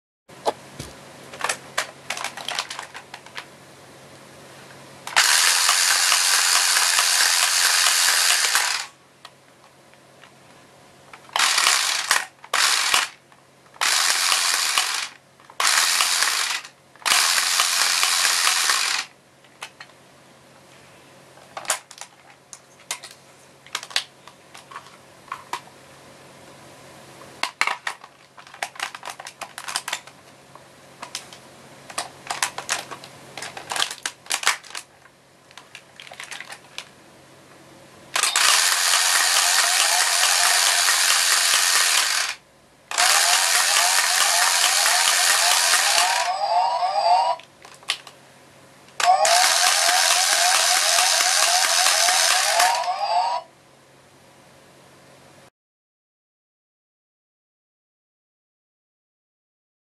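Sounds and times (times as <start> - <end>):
toy gun motor whirring: 5.1 - 9.0, 11.3 - 13.2, 13.8 - 19.1, 38.2 - 47.4, 49.0 - 53.5
plastic clicks and snaps: 21.6 - 25.6, 47.4 - 48.2.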